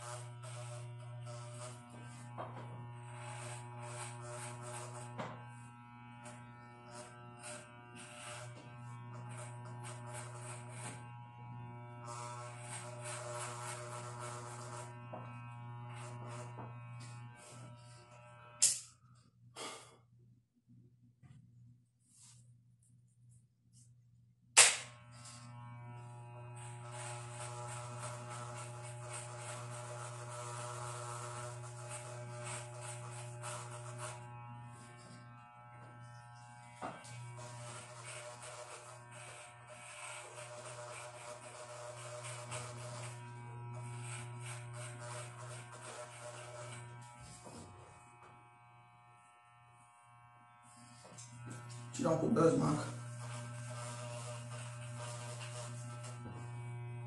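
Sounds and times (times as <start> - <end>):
blades rasping through hair: 0.0 - 19.8, 24.6 - 57.0
electric hair clippers buzzing: 0.0 - 19.9, 24.6 - 57.0
sharp knock: 24.6 - 24.9.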